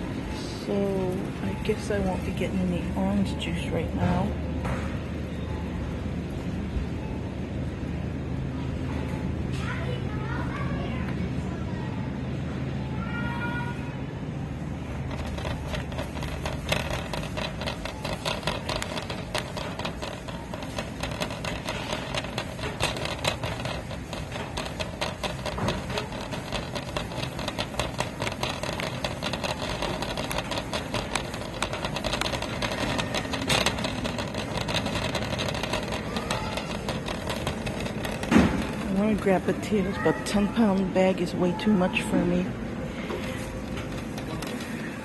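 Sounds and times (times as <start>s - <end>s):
shopping cart rattling on tiles: 14.8s - 42.4s, 43.2s - 45.0s.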